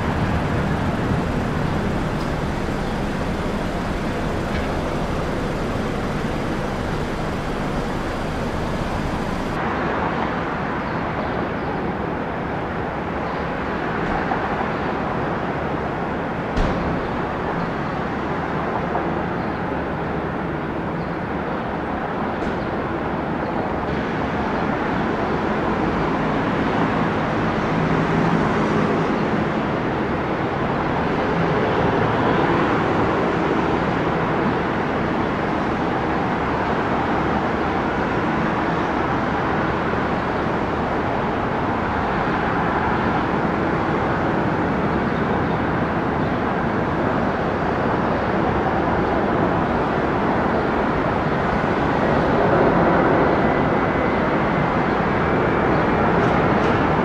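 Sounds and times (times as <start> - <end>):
aircraft engine noise: 0.0 - 9.7.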